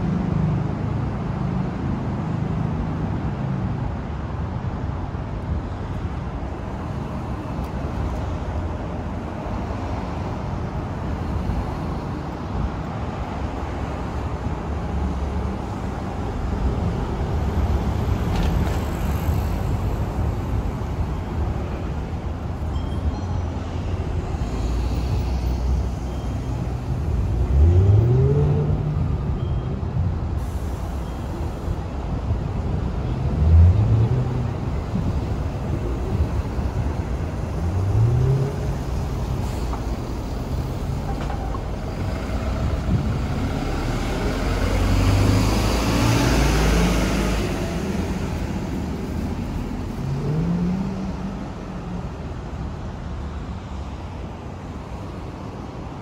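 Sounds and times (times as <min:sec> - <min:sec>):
vehicle engines pulling away: 0:36.2 - 0:52.0.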